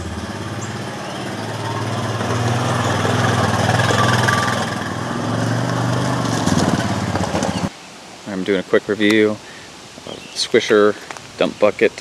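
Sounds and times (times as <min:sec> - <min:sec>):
quad engine running: 0:00.0 - 0:07.7.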